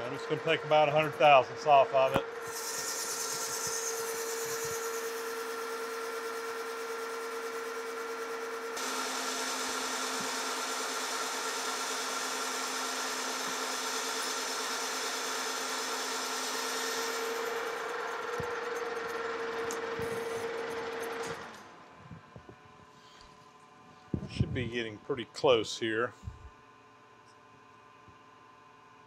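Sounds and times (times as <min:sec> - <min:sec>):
metal lathe humming: 0:00.0 - 0:21.6
lathe tool cutting hiss: 0:02.4 - 0:05.5, 0:08.8 - 0:17.9.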